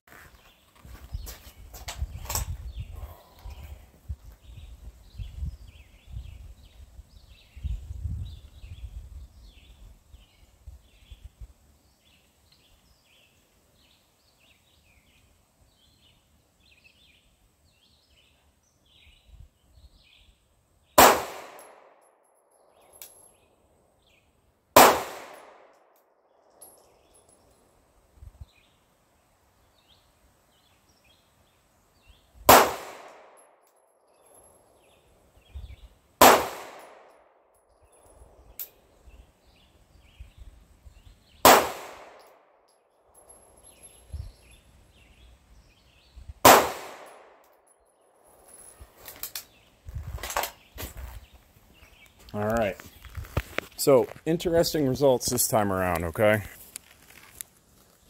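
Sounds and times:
pistol shots ringing: 21.0 - 22.0, 24.8 - 25.7, 32.5 - 33.4, 36.2 - 37.1, 41.4 - 42.4, 46.4 - 47.4.

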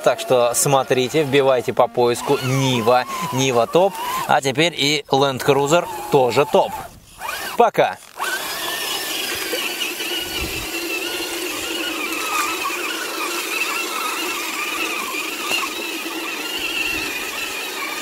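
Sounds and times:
electric motor whine: 0.0 - 18.0.

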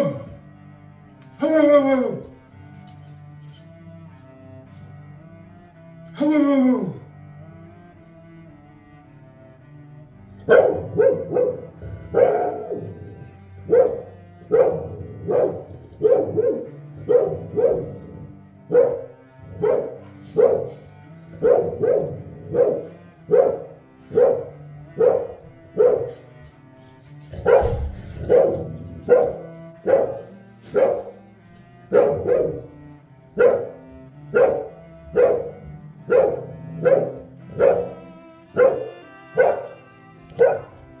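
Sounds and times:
background music: 0.0 - 41.0
dog barking: 10.5 - 26.3, 27.3 - 31.2, 31.9 - 32.8, 33.4 - 39.8, 40.4 - 40.8.

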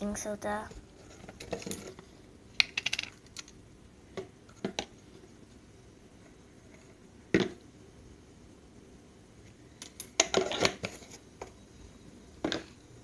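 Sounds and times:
plastic containers clicking on stone: 2.6 - 3.6.

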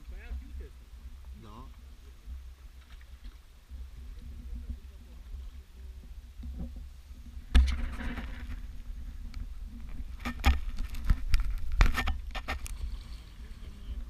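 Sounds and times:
paddle stroke splashing: 2.0 - 13.8
low microphone rumble: 3.6 - 14.0.

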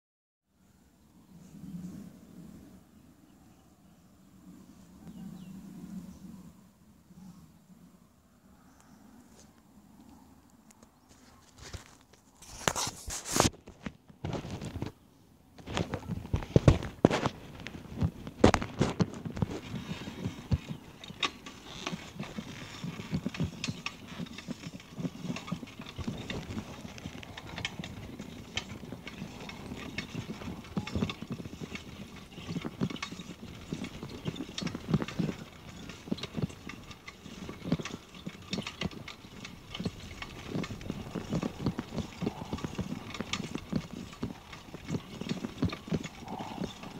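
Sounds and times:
bicycle rattles and knocks: 11.6 - 15.0, 15.6 - 46.9
steady riding noise: 15.6 - 46.9.

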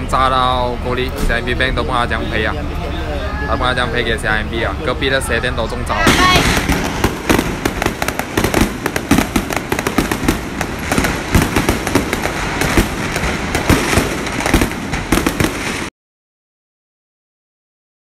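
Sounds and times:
fireworks bangs and crackles: 3.7 - 15.9.

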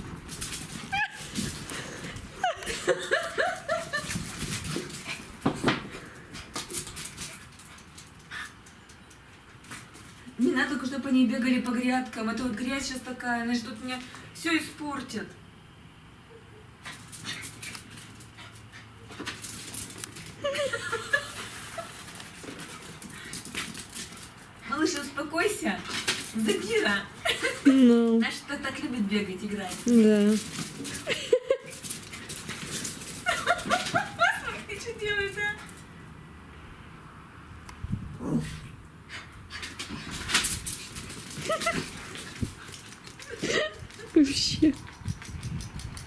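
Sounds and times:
paws scuffling on paving: 0.0 - 14.2, 16.8 - 35.9, 39.1 - 46.0
puppies whining and yipping: 0.9 - 1.4.

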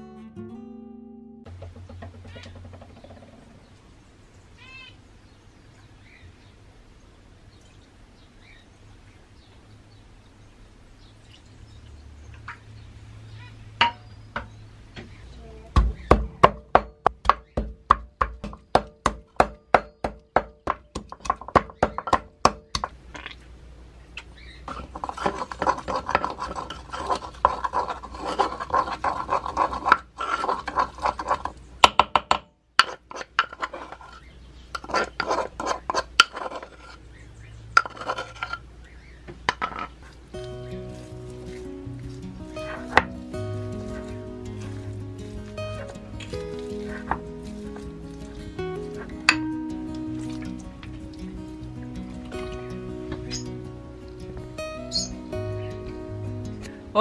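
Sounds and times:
pestle knocking in wooden mortar: 15.8 - 23.0, 24.7 - 33.7
pestle grinding garlic: 24.7 - 31.6, 34.8 - 37.0, 40.4 - 51.7.

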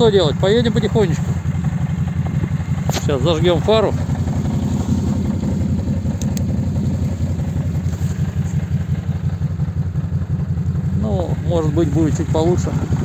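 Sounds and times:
quad bike engine idling: 0.0 - 13.0
faint clicks: 6.1 - 6.5.

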